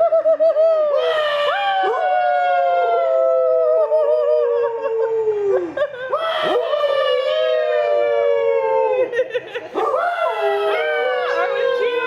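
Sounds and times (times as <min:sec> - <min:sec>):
dogs howling: 0:01.0 - 0:09.2, 0:09.8 - 0:12.0.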